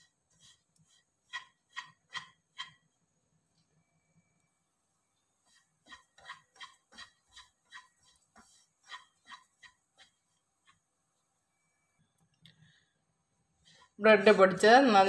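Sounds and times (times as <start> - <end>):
spatula scraping pan: 0.0 - 2.8, 5.3 - 10.9.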